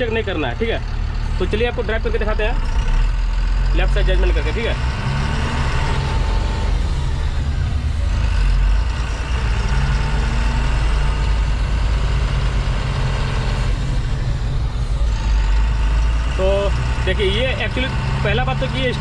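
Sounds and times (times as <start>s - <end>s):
truck diesel engine running: 0.0s - 19.0s.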